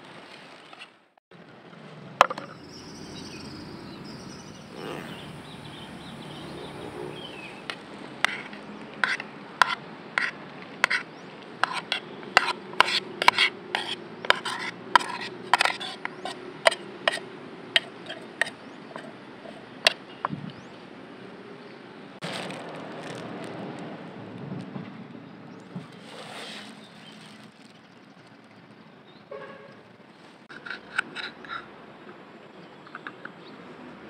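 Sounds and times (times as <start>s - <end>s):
outdoor background noise: 0.0s - 34.0s
metal spoon scraping metal pot: 8.2s - 17.2s, 17.8s - 19.7s, 30.5s - 31.7s.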